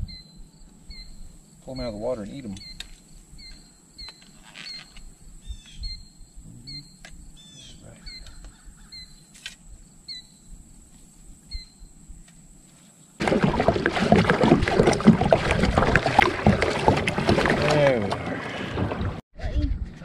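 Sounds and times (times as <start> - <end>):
other birds chirping: 0.0 - 9.4
songbird chirping: 0.0 - 13.1
water noise: 13.2 - 19.2.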